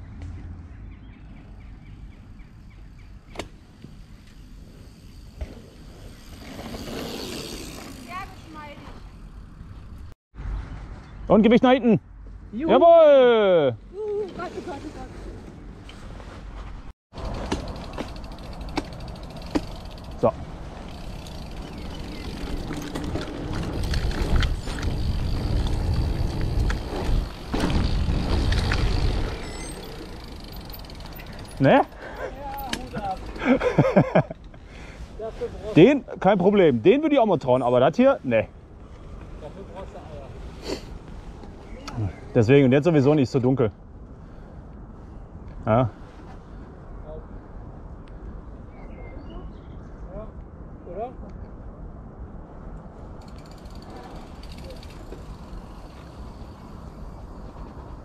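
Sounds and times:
bike rattling over bumps: 0:02.6 - 0:10.0, 0:17.1 - 0:33.8, 0:53.2 - 0:58.0
wind rumbling on microphone: 0:20.3 - 0:31.5.

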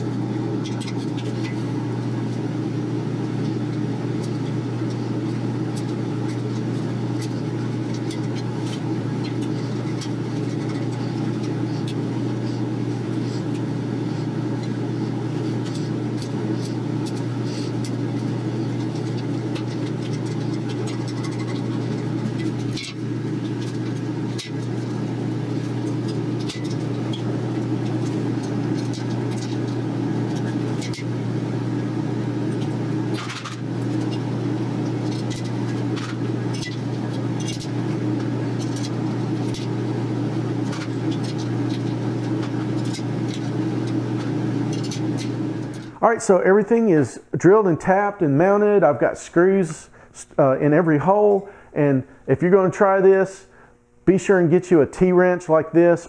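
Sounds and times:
low mechanical hum: 0:00.0 - 0:56.0.

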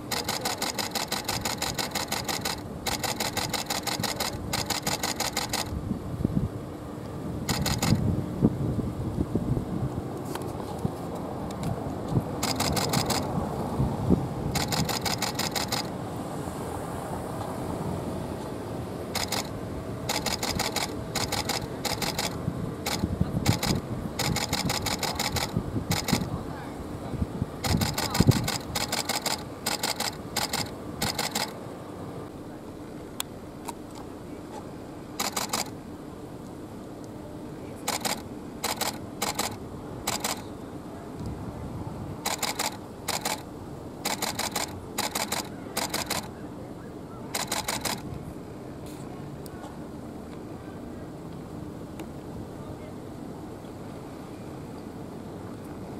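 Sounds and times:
low background hum: 0:00.0 - 0:55.9
low street noise: 0:00.0 - 0:55.9
camera shutters firing: 0:00.1 - 0:05.7, 0:07.5 - 0:08.0, 0:12.4 - 0:13.3, 0:14.6 - 0:15.9, 0:19.2 - 0:19.5, 0:20.1 - 0:26.2, 0:27.6 - 0:31.6, 0:35.2 - 0:35.7, 0:37.9 - 0:40.4, 0:42.3 - 0:43.4, 0:44.0 - 0:46.3, 0:47.4 - 0:48.0.

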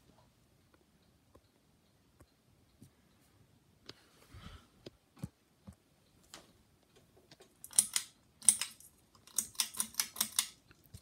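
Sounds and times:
ceiling fan rattling clicks: 0:06.1 - 0:11.0.

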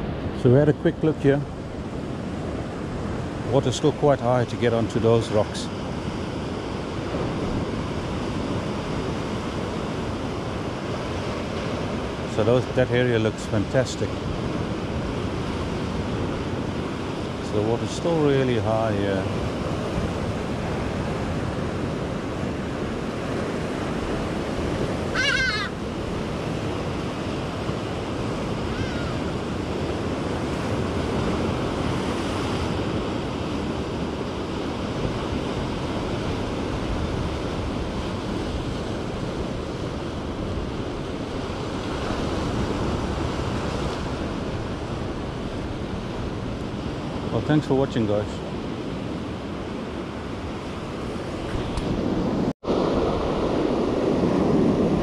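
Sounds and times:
brief wavering high call: 0:25.1 - 0:25.8.

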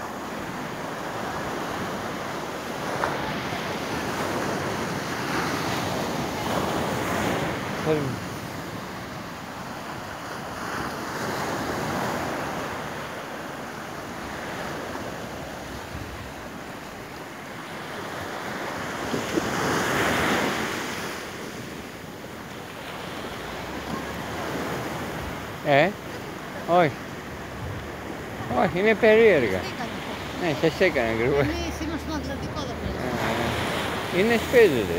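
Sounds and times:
surf breaking on beach: 0:00.0 - 0:34.9
wind buffeting microphone: 0:27.3 - 0:28.5.

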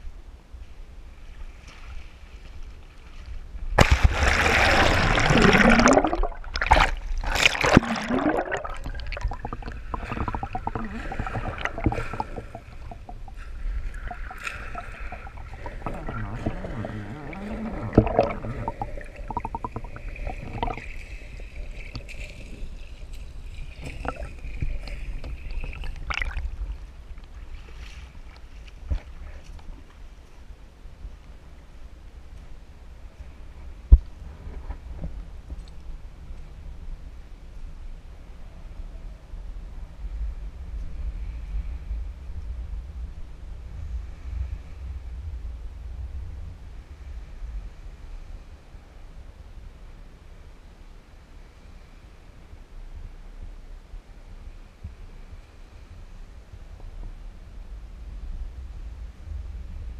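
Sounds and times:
camera splashing into water: 0:03.8 - 0:13.2
clicks underwater: 0:03.8 - 0:22.7, 0:23.6 - 0:26.6
muffled underwater gurgling: 0:04.0 - 0:26.6.

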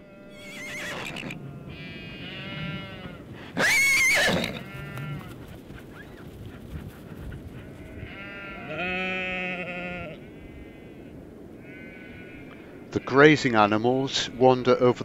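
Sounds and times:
sheep bleating: 0:00.0 - 0:05.3, 0:07.7 - 0:13.5.

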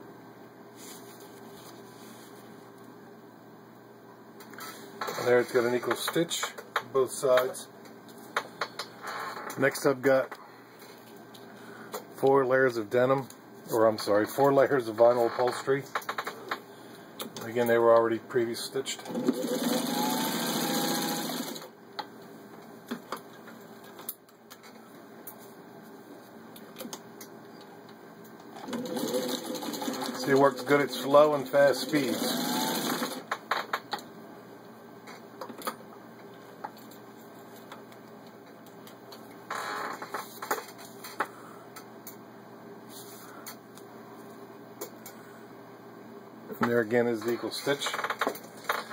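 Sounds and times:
faint hum: 0:00.0 - 0:19.8, 0:21.2 - 0:48.9
sewing machine stitching: 0:19.1 - 0:21.7, 0:28.6 - 0:31.1, 0:31.7 - 0:33.3.

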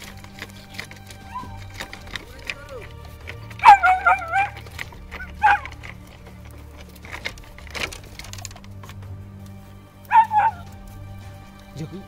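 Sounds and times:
dog yelping: 0:00.6 - 0:06.8, 0:10.0 - 0:10.7.

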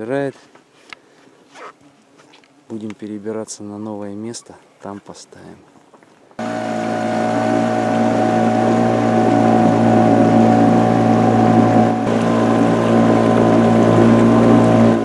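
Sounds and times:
outboard motor droning: 0:06.4 - 0:15.0.

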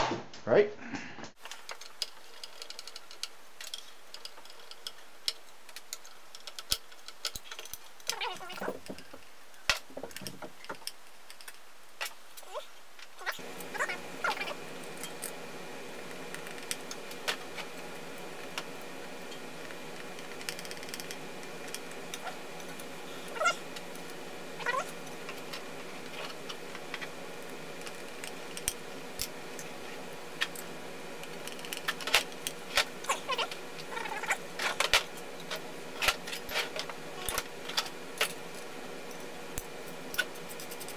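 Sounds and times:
steady background hum: 0:00.0 - 0:40.9
small tools clicking on table: 0:01.4 - 0:12.1, 0:20.1 - 0:21.9
meow-like cries: 0:23.3 - 0:23.6, 0:24.6 - 0:24.9.

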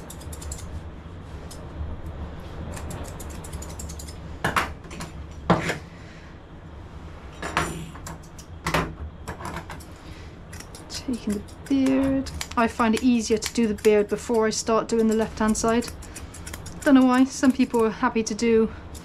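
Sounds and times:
low steady rumble: 0:00.0 - 0:19.0
scissors snipping: 0:10.5 - 0:18.0.

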